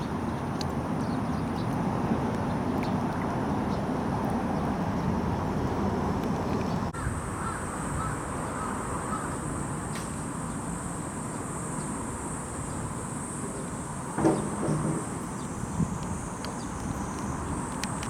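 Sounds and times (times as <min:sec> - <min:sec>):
faint bird calls: 0:07.0 - 0:10.0.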